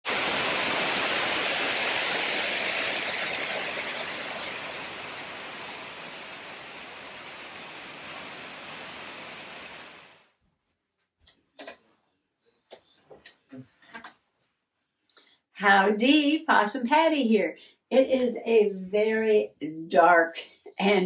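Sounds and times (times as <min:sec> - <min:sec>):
steady rain: 0:00.0 - 0:10.3.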